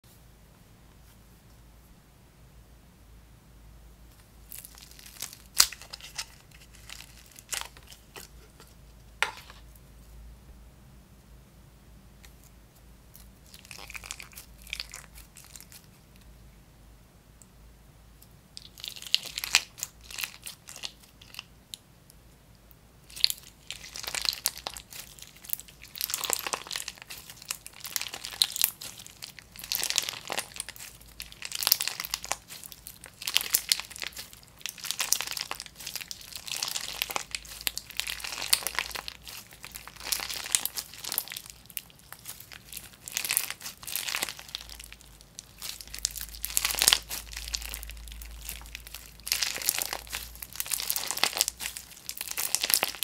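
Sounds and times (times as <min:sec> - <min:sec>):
slime crunching and crackling: 0:04.4 - 0:08.4, 0:13.1 - 0:16.3, 0:18.6 - 0:21.8, 0:23.0 - 0:53.0.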